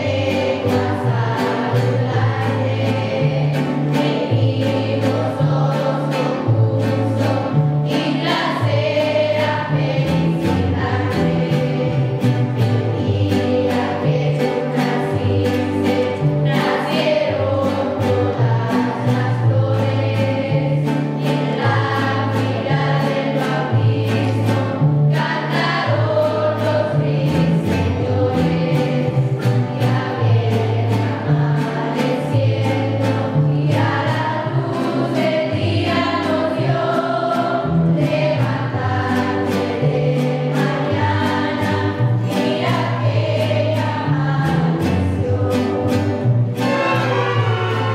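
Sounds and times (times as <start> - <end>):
strummed guitars: 0.0 - 47.9
violins playing melody: 46.2 - 47.9.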